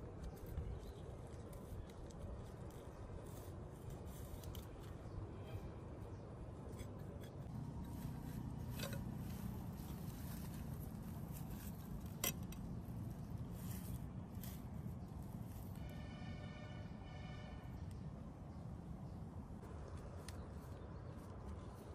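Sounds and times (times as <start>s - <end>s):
hands scraping through pine needles: 13.0s - 15.9s.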